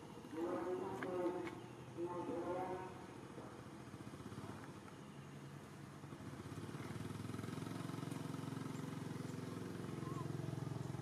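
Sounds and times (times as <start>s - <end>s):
motor engine running: 0.0s - 11.0s.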